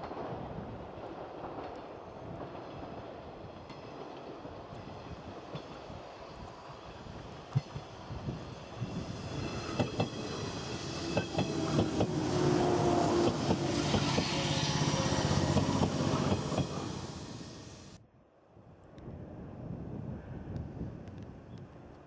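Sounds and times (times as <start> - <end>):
train motor hum: 9.0 - 18.0
train wheels clacking over rail joints: 9.5 - 17.0.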